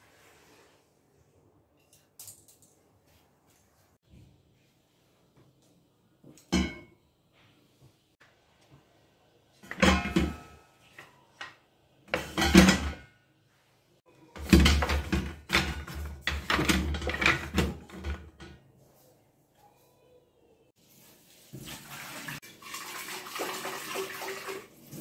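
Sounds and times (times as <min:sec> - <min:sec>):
wooden utensils clattering in metal holder: 0:09.6 - 0:10.6, 0:12.1 - 0:13.1, 0:14.4 - 0:18.6.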